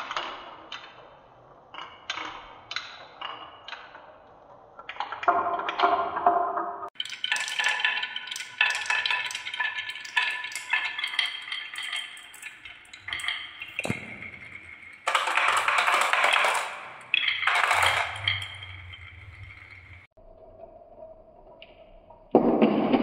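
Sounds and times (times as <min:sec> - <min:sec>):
marbles clicking on wooden tracks: 0:01.7 - 0:20.1.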